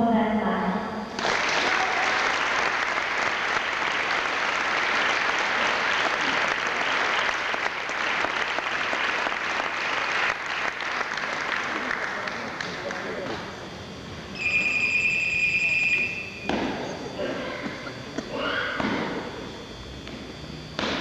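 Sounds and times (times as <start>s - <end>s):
audience applauding: 1.2s - 13.2s.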